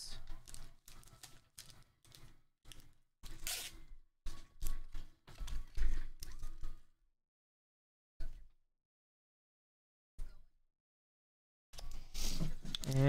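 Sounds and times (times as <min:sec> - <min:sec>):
cards and wrappers rustling: 0:00.1 - 0:03.8.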